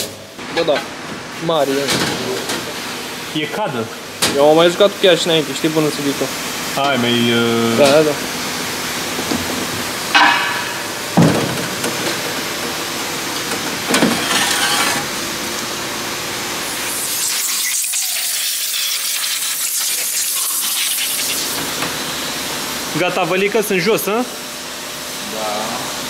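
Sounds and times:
metal knocks: 10.1 - 12.2
water spray rushing: 16.8 - 21.6
thin hiss: 16.9 - 21.6.

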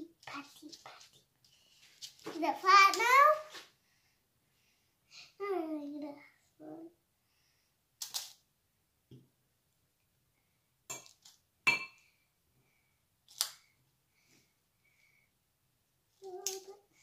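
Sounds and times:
metal spoon clinking glass bowl: 10.9 - 12.0.

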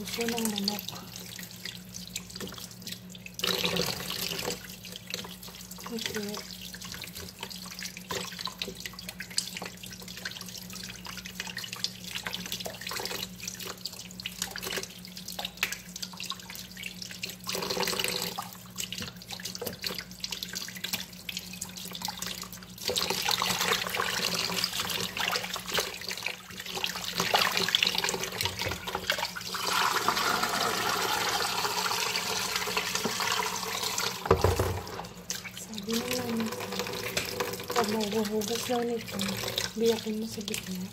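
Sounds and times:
running water: 0.0 - 40.9
water poured into sink: 2.2 - 16.5, 17.2 - 40.9.

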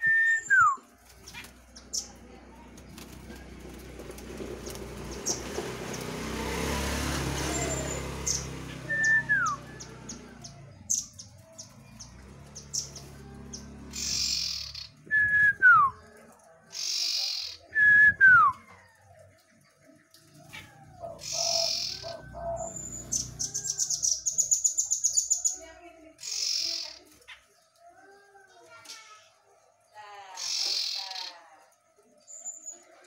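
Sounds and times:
bird whistling: 0.0 - 0.9, 7.5 - 11.2, 13.9 - 16.0, 21.2 - 25.4.

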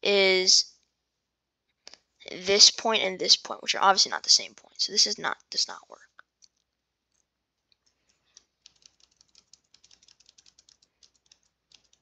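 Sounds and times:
keyboard and mouse clicking: 6.4 - 12.0.

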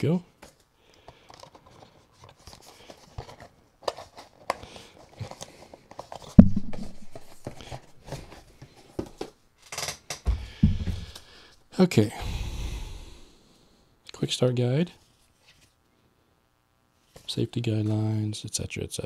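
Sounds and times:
paper and cardboard rustling: 1.3 - 9.2
loud thump: 6.4 - 7.4, 10.4 - 11.2
low thuds: 6.4 - 7.5, 10.3 - 11.2.

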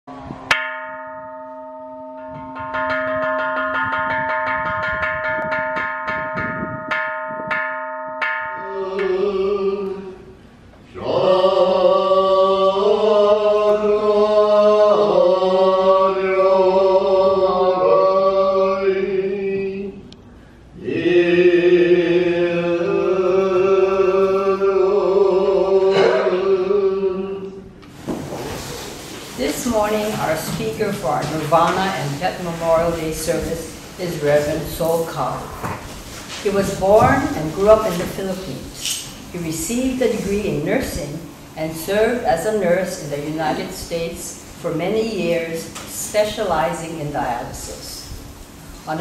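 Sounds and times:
person singing a chant: 8.6 - 10.3, 10.9 - 20.0, 20.8 - 27.7.

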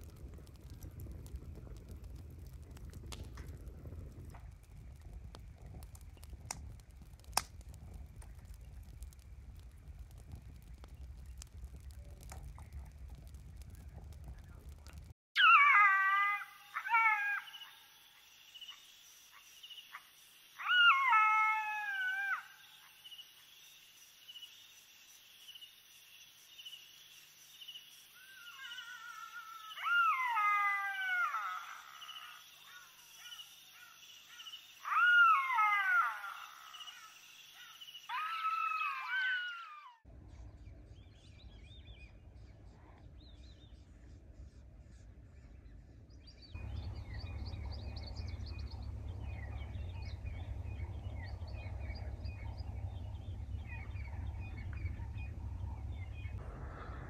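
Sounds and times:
faint low rumble: 0.0 - 15.2, 40.1 - 57.0
jackals wailing: 14.6 - 17.7, 28.6 - 32.8, 34.8 - 39.9, 46.6 - 57.0
insect trill: 15.9 - 39.4.

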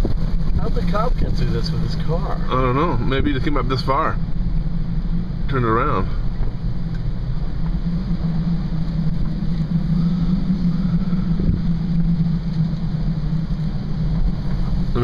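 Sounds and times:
car engine and tyres droning: 0.0 - 15.0.

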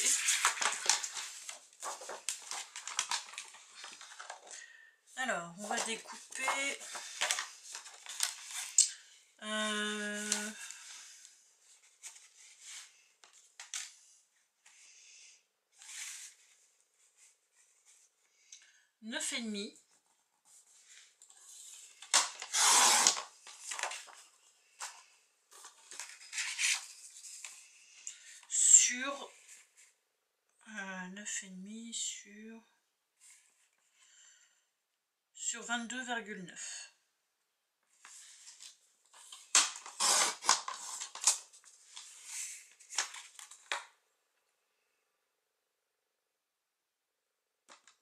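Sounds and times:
paper scraping and rustling: 0.0 - 4.5, 5.6 - 8.8, 20.4 - 27.7, 38.0 - 43.8
trimmer blade slicing paper: 22.4 - 23.3, 39.7 - 40.7.

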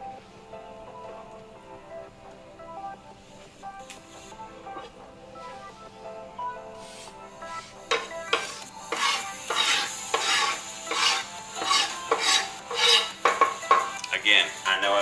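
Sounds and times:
knife scraping wooden cutting board: 7.9 - 13.6.

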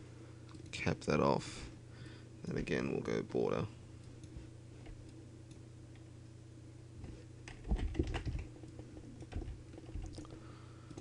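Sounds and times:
keyboard keystrokes and clicks: 7.4 - 10.3.

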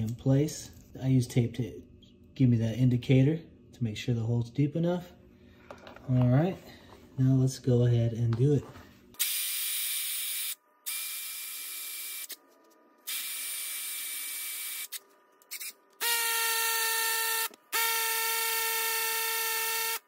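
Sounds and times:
drill whine: 13.1 - 20.0
hammer drill boring into concrete: 13.1 - 20.0.

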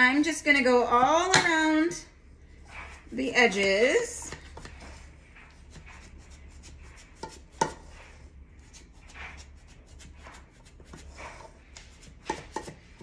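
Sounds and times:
tool scraping cake pan: 2.6 - 13.0.

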